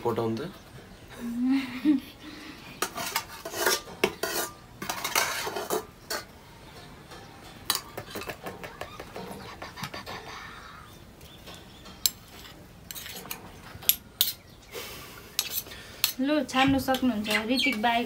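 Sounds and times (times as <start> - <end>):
metal spoon scraping a pot: 2.8 - 6.4, 11.5 - 14.4, 15.3 - 16.2.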